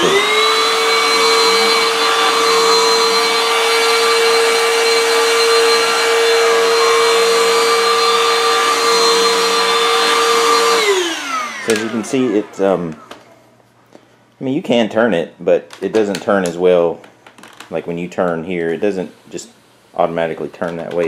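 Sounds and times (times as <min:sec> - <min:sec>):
stick vacuum motor whine: 0:00.0 - 0:13.2, 0:20.0 - 0:21.0.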